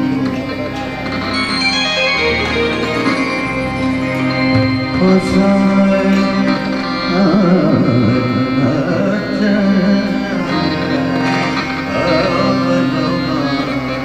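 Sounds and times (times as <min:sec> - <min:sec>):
harmonium: 0:00.0 - 0:14.0
man singing ornamented melody: 0:04.6 - 0:14.0.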